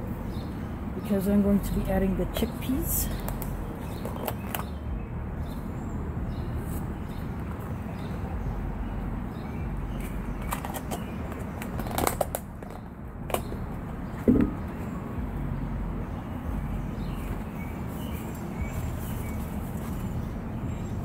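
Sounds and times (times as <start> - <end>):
loud knock: 14.3 - 14.6.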